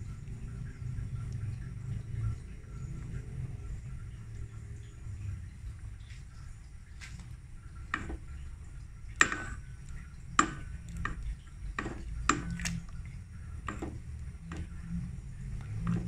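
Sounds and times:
low steady hum: 0.0s - 16.0s
wooden spoon knocking in metal pot: 7.9s - 8.3s, 9.2s - 9.6s, 10.3s - 12.8s, 13.6s - 14.8s.

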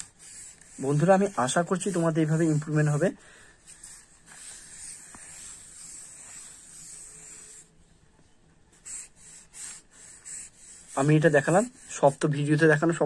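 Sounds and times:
pencil scratching on paper: 0.0s - 7.8s, 8.7s - 13.0s.

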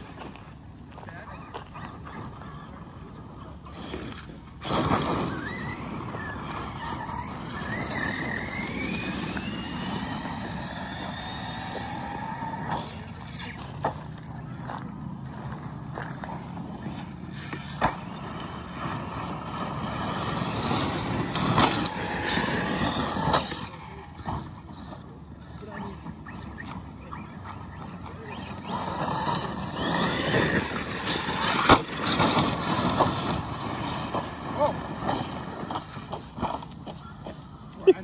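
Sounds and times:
rc car motors whining: 0.0s - 38.0s
gravel spraying under tyres: 3.5s - 24.1s, 25.6s - 37.4s
cars landing with knocks: 16.4s - 24.9s.

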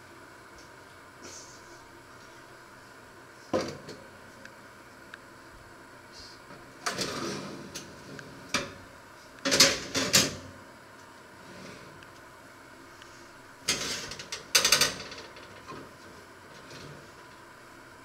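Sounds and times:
metal baking tray scraping and rattling: 13.7s - 15.7s.

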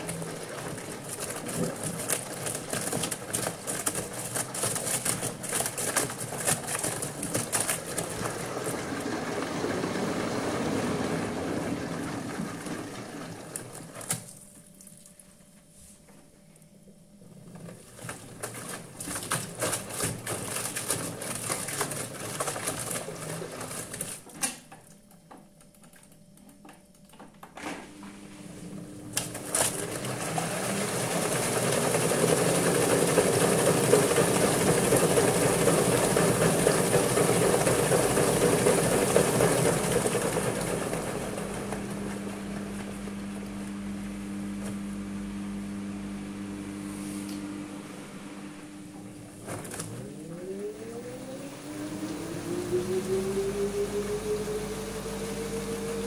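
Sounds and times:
washing machine drum tumbling: 0.0s - 14.3s, 27.8s - 46.6s
washing machine spinning whirring hum: 0.0s - 56.0s.

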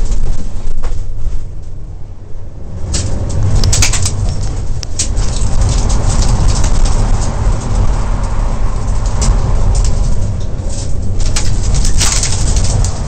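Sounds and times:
road rumble: 0.0s - 13.0s
car engine running: 2.6s - 13.0s
stones rattling against underside: 3.0s - 13.0s.

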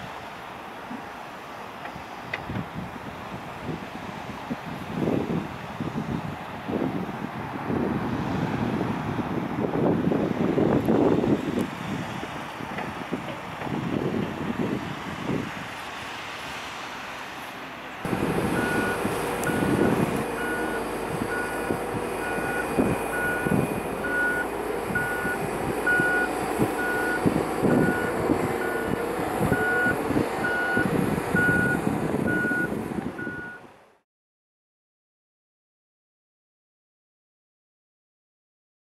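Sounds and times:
diesel engines running: 0.0s - 34.0s
wind: 0.0s - 34.0s
distant machinery noise: 15.7s - 33.7s
reversing alarm beeping: 18.1s - 33.6s.

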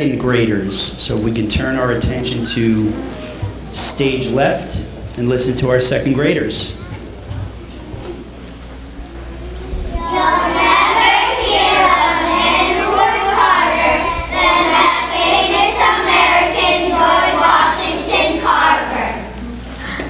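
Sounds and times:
children reciting in unison: 9.6s - 20.0s.

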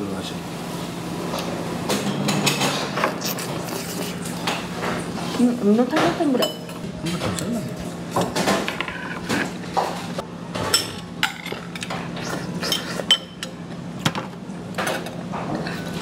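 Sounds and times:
utensils clinking against bowls: 5.8s - 13.6s.

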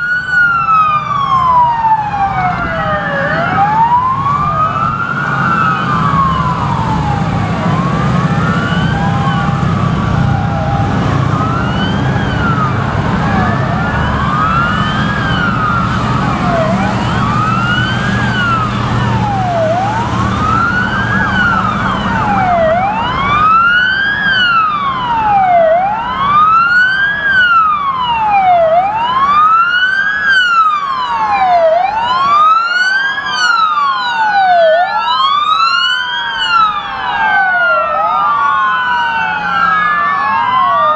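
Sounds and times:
police sirens wailing: 0.0s - 40.9s
motorcycle engines rumbling: 0.1s - 32.5s.

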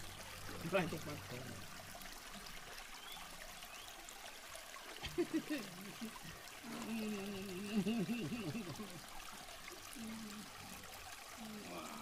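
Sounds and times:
river water trickling: 0.0s - 12.0s
man laughing: 5.0s - 6.2s, 7.6s - 9.0s.

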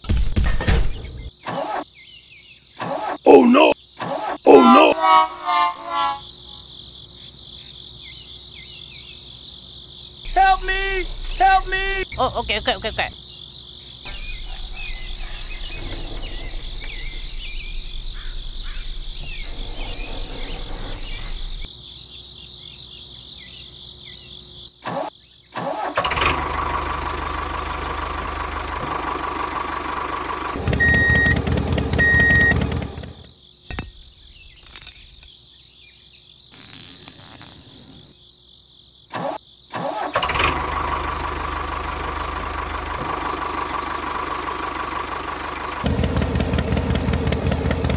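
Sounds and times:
crickets chirring: 1.0s - 30.1s, 33.2s - 40.2s
diesel tiller engine running: 14.1s - 21.6s, 25.6s - 33.3s, 39.8s - 47.9s.

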